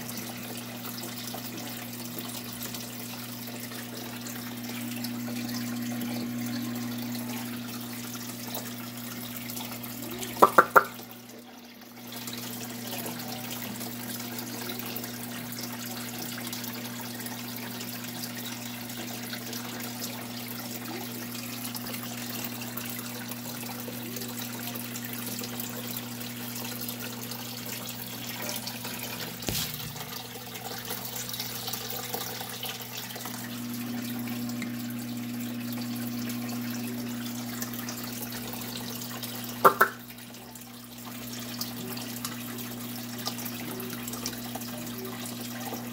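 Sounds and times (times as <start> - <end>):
low pump hum: 0.0 - 45.9
water trickling into aquarium: 0.0 - 45.9
short high-pitched sounds: 10.4 - 11.0, 39.7 - 40.0.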